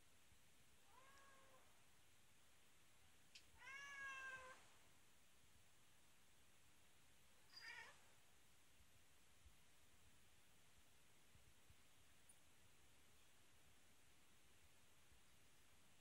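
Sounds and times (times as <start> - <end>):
cat meowing: 0.9 - 1.6, 3.6 - 4.6, 7.5 - 8.0.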